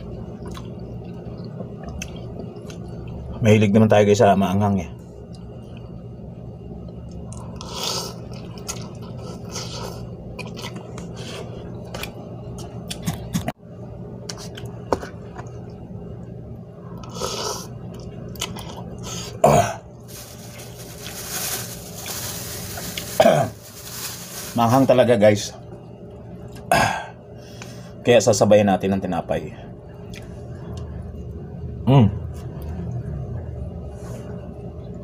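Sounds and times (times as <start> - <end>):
low steady hum: 0.0 - 35.0
chewing and slurping: 7.3 - 13.2
person coughing: 19.4 - 19.9, 23.2 - 23.6, 26.7 - 27.2
plastic bag rustling: 20.0 - 25.5.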